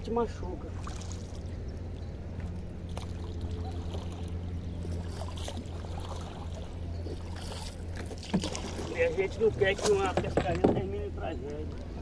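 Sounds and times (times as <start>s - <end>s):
steady low hum: 0.0s - 12.0s
pole knocks and water sounds: 4.9s - 11.0s.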